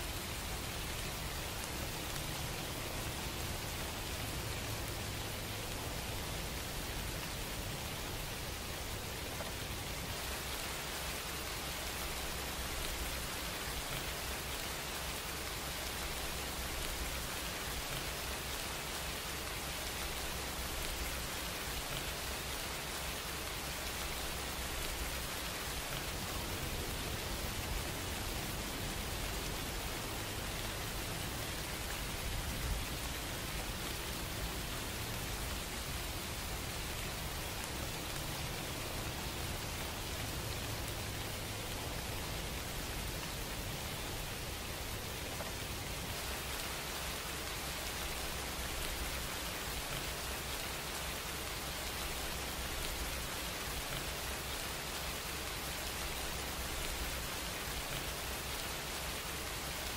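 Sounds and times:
steady hiss: 0.0s - 59.9s.

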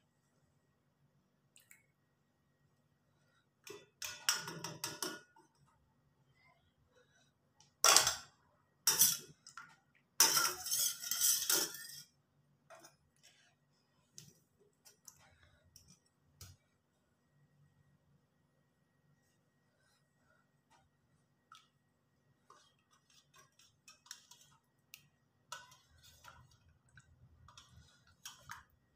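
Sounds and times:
spoon scraping steel bowl: 8.9s - 9.4s, 10.2s - 13.6s, 22.5s - 24.7s, 25.5s - 28.7s.

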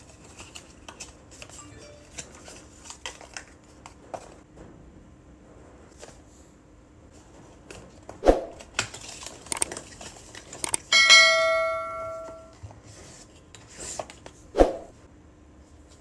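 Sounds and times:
bell chime ringing: 1.6s - 2.5s, 10.9s - 12.6s.

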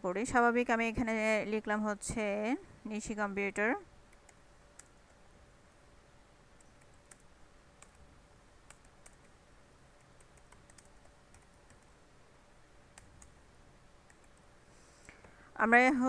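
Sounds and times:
keyboard typing clicks: 4.1s - 5.2s, 6.6s - 8.0s, 8.6s - 9.4s, 10.0s - 11.9s, 12.9s - 13.4s, 14.0s - 14.5s.

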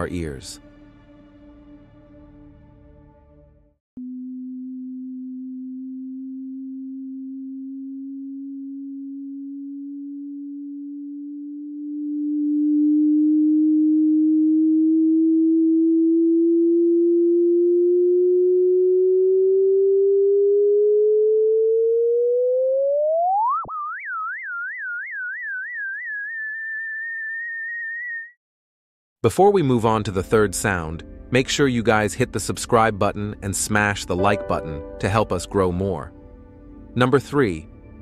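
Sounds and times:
electronic tone rising in pitch: 4.0s - 28.4s.

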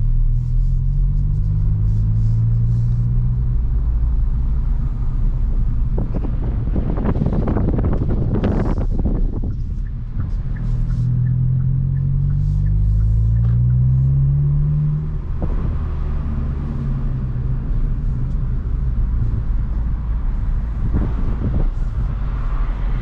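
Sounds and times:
car engine revving in cabin: 0.0s - 23.0s.

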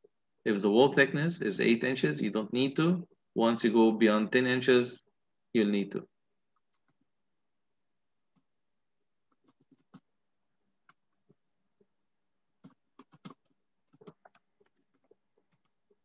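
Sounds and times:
keyboard and mouse clicks: 9.3s - 10.1s, 12.5s - 16.0s.

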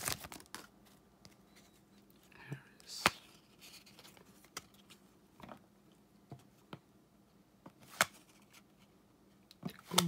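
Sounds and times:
cards snapping and sliding: 7.8s - 8.3s.

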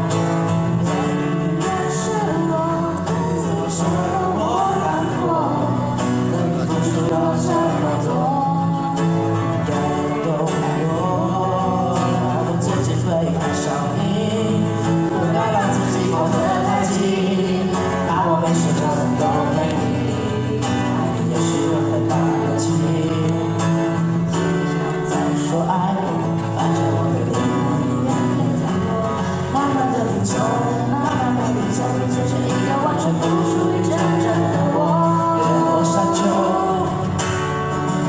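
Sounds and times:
person singing: 0.0s - 38.0s
strummed acoustic guitars: 0.0s - 38.0s.

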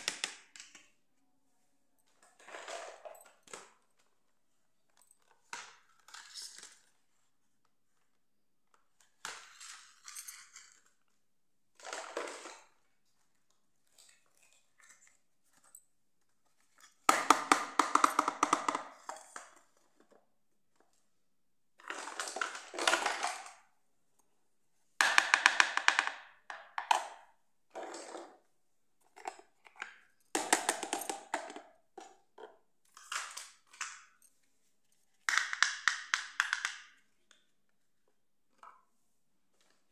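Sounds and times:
plastic toys clattering on tile: 2.1s - 7.0s, 8.9s - 15.8s, 16.5s - 20.3s, 21.8s - 23.7s, 25.0s - 34.3s, 35.2s - 37.5s.

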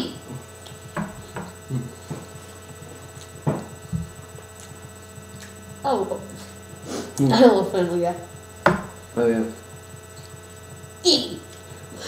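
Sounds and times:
electrical mains hum: 0.0s - 12.0s
people chewing: 0.2s - 7.4s, 9.6s - 12.0s.

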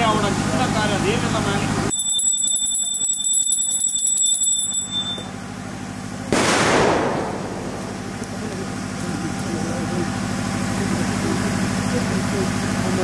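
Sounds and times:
high-pitched bell ringing: 1.9s - 5.4s
firecracker bang: 6.3s - 8.5s.

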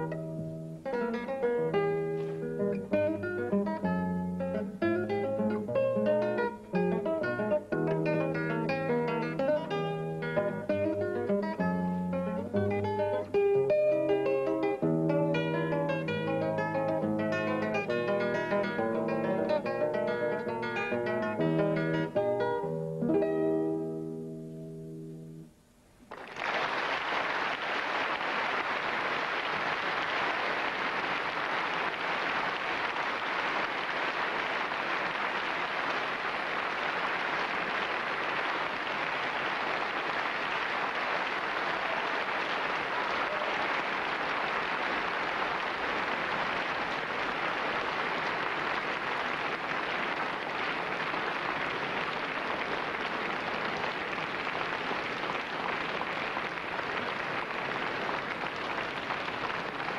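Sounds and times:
classical guitar chord: 0.0s - 25.5s
audience applauding: 26.0s - 59.9s.

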